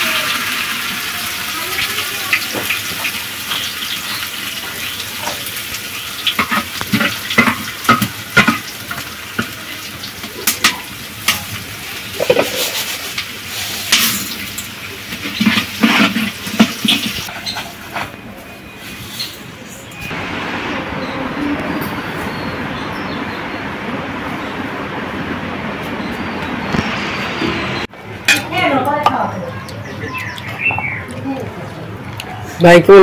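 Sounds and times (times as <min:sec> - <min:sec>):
metal ladle scraping a pot: 0:12.2 - 0:14.4, 0:15.1 - 0:18.2.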